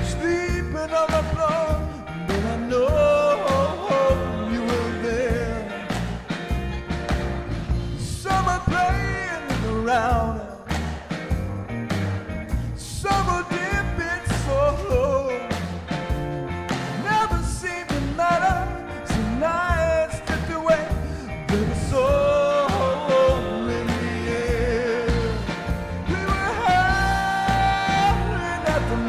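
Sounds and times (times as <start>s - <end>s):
man singing into microphone: 0.0s - 6.0s, 8.0s - 10.7s, 12.8s - 15.6s, 17.0s - 29.0s
backing music with bass beat: 0.0s - 29.0s.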